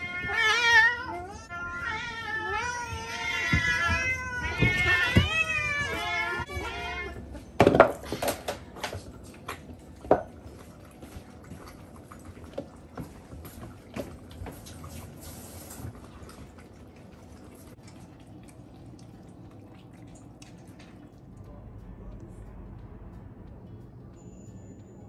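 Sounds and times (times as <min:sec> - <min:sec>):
cats meowing: 0:00.0 - 0:07.4.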